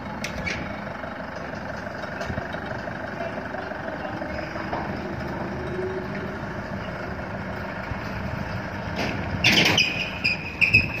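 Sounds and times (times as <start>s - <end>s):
forklift engine running: 0.0s - 11.0s
high squeal: 9.4s - 11.0s.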